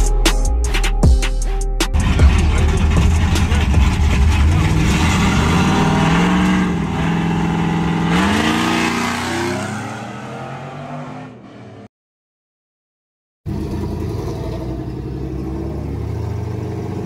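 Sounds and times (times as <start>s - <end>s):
truck engine revving hard: 2.0s - 11.9s, 13.5s - 17.0s.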